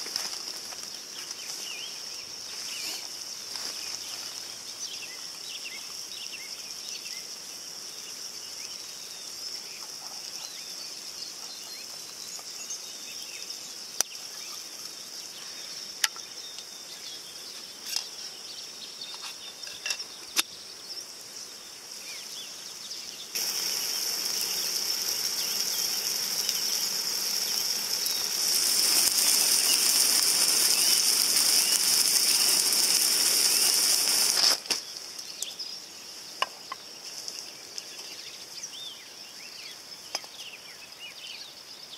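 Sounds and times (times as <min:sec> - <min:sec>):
food sizzling in a frying pan: 0:00.0 - 0:16.0, 0:21.8 - 0:38.6
gas stove hissing: 0:23.2 - 0:35.5.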